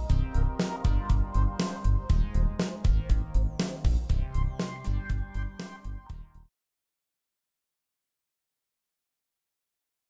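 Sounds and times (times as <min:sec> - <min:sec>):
music with drum beat and bass: 0:00.0 - 0:06.4.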